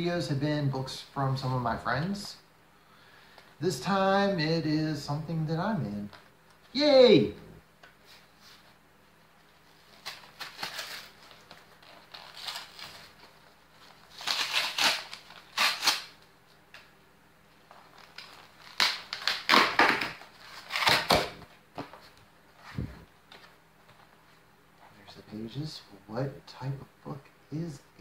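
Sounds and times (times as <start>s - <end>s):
cardboard tearing and crunching: 10.0s - 16.1s, 18.0s - 21.4s.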